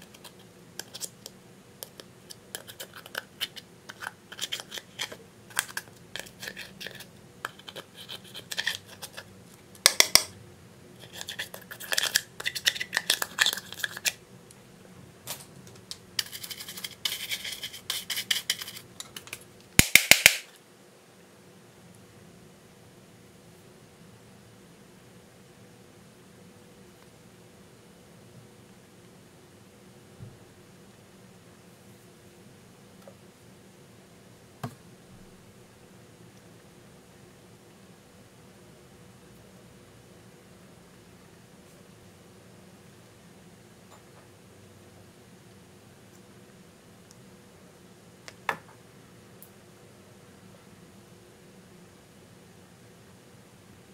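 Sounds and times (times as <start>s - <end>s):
faint steady hum: 0.0s - 53.9s
metal spatula scraping eyeshadow: 2.3s - 9.3s, 16.2s - 19.2s.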